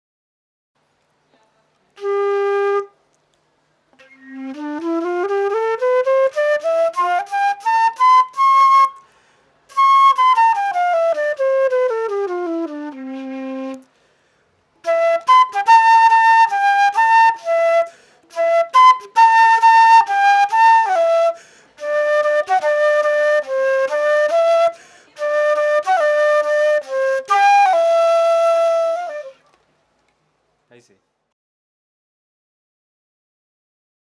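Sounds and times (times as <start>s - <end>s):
solo flute melody: 2.0s - 3.0s, 4.0s - 13.9s, 14.8s - 29.6s.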